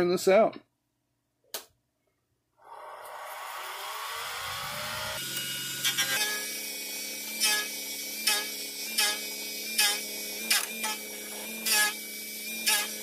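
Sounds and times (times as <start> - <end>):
lathe motor whine: 2.7 - 13.0
turning tool scraping: 7.2 - 13.0.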